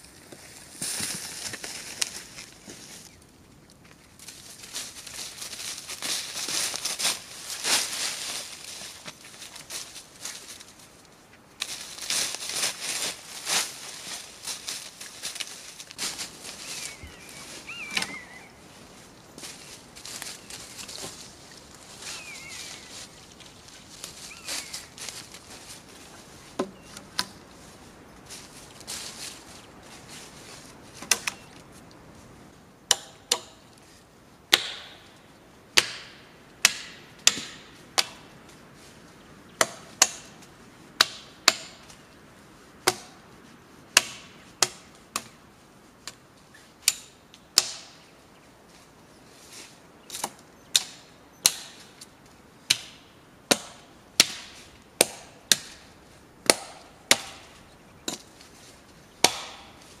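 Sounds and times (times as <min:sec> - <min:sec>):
hand tool striking wood: 0:32.9 - 0:33.6, 0:34.5 - 0:35.0, 0:35.8 - 0:38.2, 0:39.6 - 0:40.3, 0:41.0 - 0:41.8, 0:42.8 - 0:43.1, 0:46.8 - 0:48.0, 0:52.7 - 0:55.8, 0:56.4 - 0:57.4, 0:59.2 - 0:59.7.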